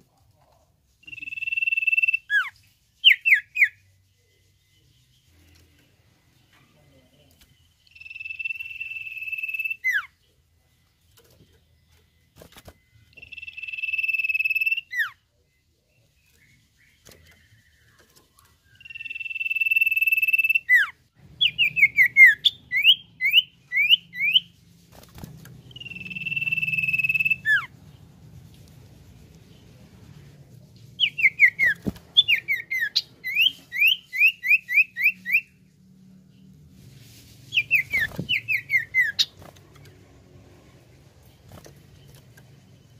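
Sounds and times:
bird singing long whistles: 0:25.8 - 0:27.6
rapid falling bird whistles: 0:37.5 - 0:39.4.

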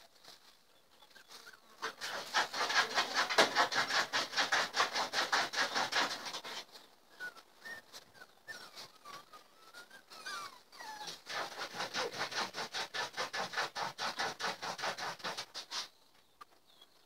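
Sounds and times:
rapid rhythmic rasping: 0:01.8 - 0:06.6
dog whining: 0:07.1 - 0:11.3.

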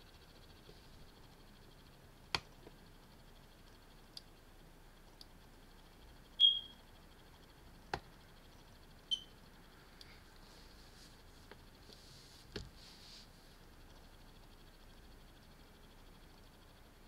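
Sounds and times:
faint high whine: 0:00.0 - 0:17.0
computer mouse clicks: 0:05.0 - 0:05.4
high-pitched chirp: 0:06.4 - 0:06.8, 0:09.1 - 0:09.3.

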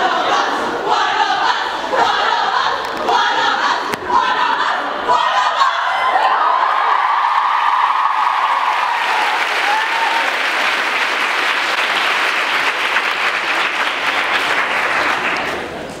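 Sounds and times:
shouted cheering: 0:05.2 - 0:11.0
audience applauding: 0:07.0 - 0:15.8.

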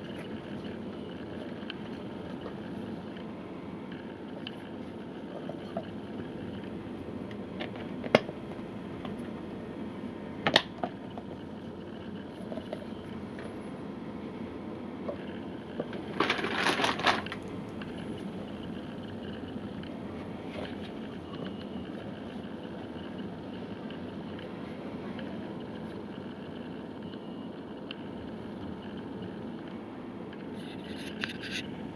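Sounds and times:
steady background hum: 0:00.0 - 0:31.9
plastic packaging crinkling: 0:16.2 - 0:17.4.

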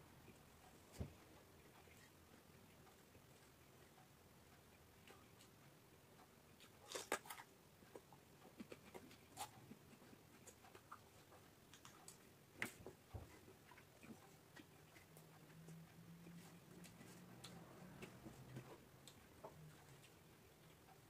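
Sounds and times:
raw vegetables crunched and chewed: 0:06.6 - 0:08.0.

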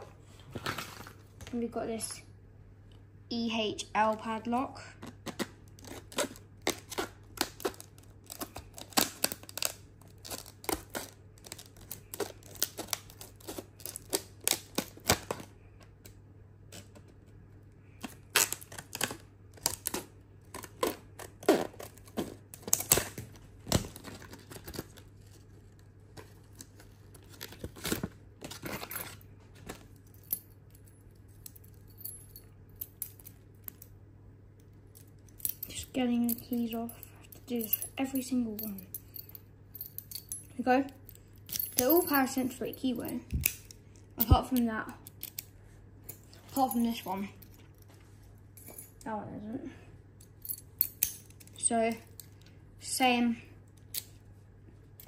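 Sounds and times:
scissors cutting plastic: 0:05.0 - 0:17.1, 0:18.0 - 0:29.2.

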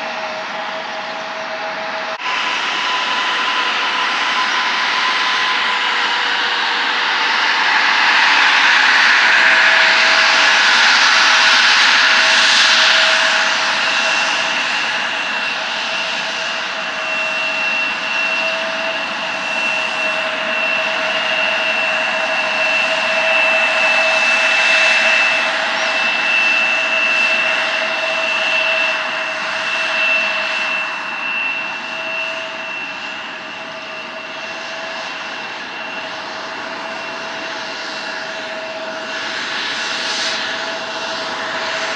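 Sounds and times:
jet airliner taxiing: 0:00.0 - 0:41.9.

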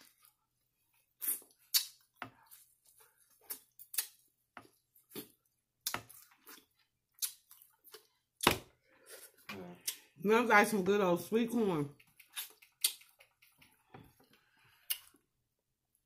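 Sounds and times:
biting and chewing corn: 0:01.0 - 0:08.2, 0:12.0 - 0:13.9.

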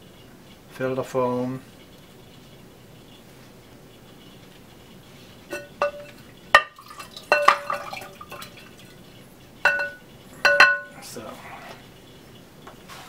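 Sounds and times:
ceramic lid knocking on bowl: 0:05.5 - 0:08.5, 0:09.7 - 0:11.0.

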